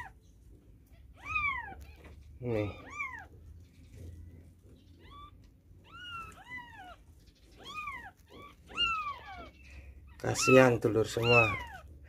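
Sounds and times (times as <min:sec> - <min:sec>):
kittens mewing: 0:00.0 - 0:00.2, 0:00.8 - 0:12.0.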